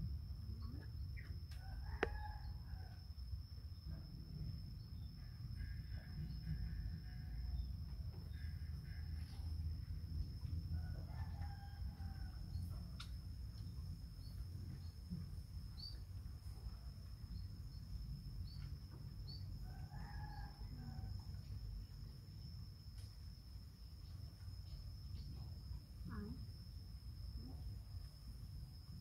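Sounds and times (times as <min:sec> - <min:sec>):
rooster crowing: 0:01.6 - 0:03.0, 0:10.8 - 0:12.8, 0:19.6 - 0:21.2.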